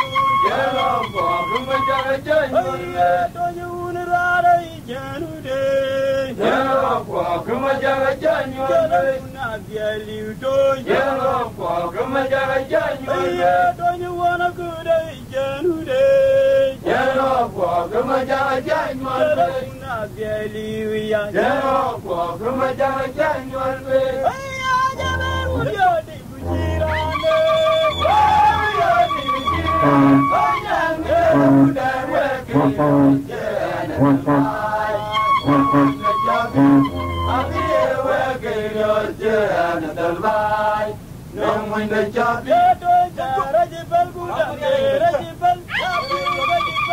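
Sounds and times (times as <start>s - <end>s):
man singing chant-like song: 0.0s - 46.9s.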